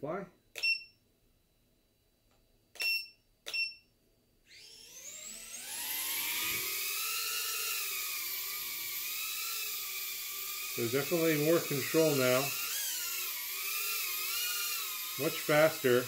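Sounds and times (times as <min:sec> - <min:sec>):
short electronic beeps: 0:00.6 - 0:01.0, 0:02.8 - 0:03.9
drone motors whining: 0:04.5 - 0:16.0.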